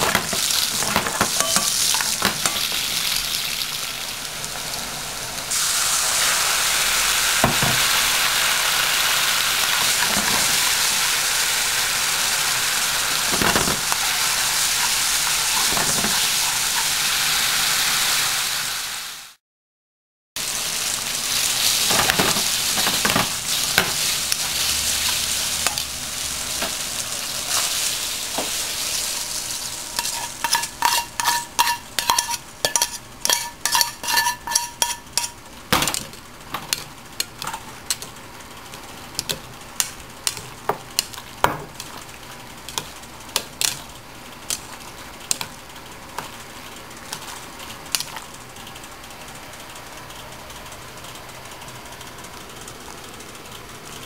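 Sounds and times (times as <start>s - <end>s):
pasta sizzling in frying pan: 0.0s - 19.4s, 20.4s - 50.1s
utensil scraping enamel bowl: 30.0s - 35.3s.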